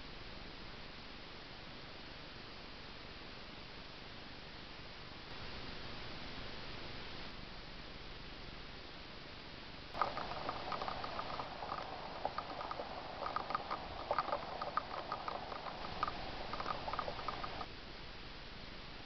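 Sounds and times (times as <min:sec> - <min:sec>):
light pattering clicks: 0:10.0 - 0:17.7.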